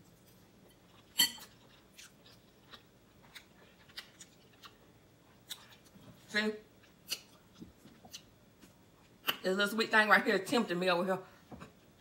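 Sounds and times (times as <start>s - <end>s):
person chewing noodles: 0.0s - 6.1s, 6.7s - 9.4s.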